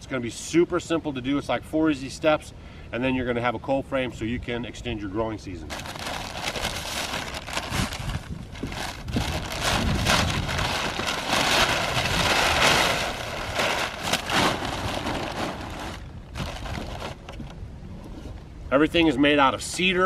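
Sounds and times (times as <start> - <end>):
packing paper crinkling: 5.7 - 17.4.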